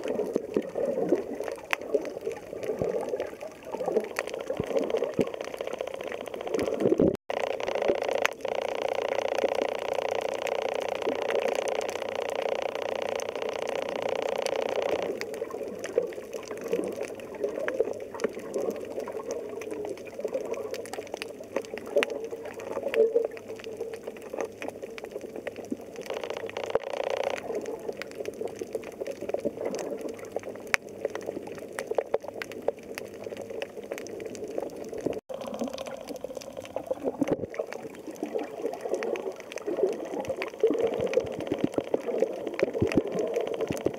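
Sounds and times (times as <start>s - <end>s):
crackle of short clicks: 0.0s - 43.9s
underwater water noise: 0.0s - 43.9s
droning hum: 4.2s - 16.0s.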